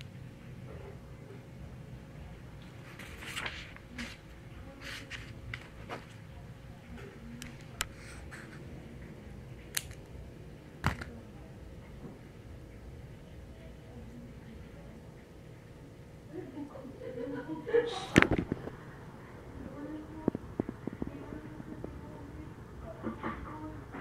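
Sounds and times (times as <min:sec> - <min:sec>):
faint room hum: 0:00.0 - 0:24.0
faint clicks and rustles: 0:02.6 - 0:08.8.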